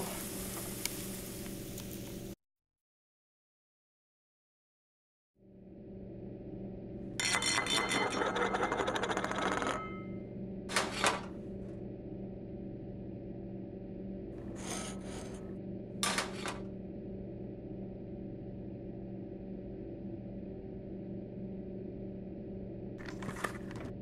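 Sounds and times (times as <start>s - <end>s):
low hum: 5.4s - 24.0s
metal cookware clattering: 7.2s - 10.0s, 16.0s - 16.6s.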